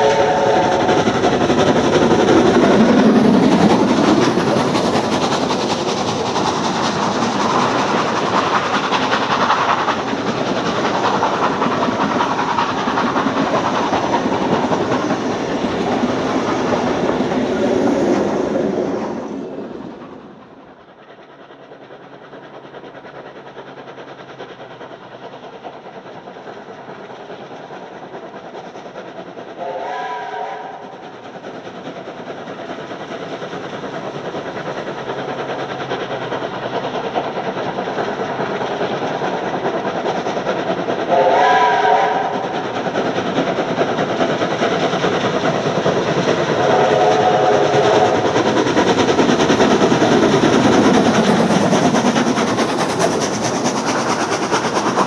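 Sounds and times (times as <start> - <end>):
steam whistle blasts: 0.0 - 0.8, 29.6 - 30.9, 41.1 - 42.4, 46.6 - 48.2
steam locomotive exhaust: 0.0 - 55.0.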